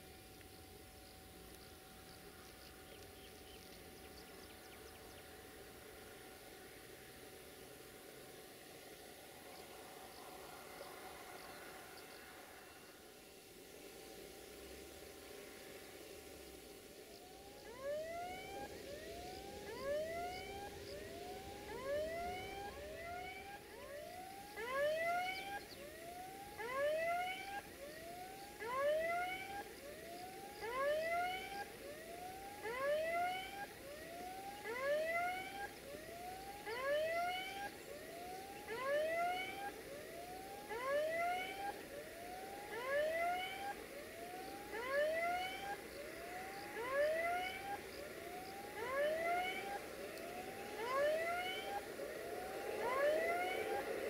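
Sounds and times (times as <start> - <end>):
level-crossing warning alarm: 16.8 - 54.0.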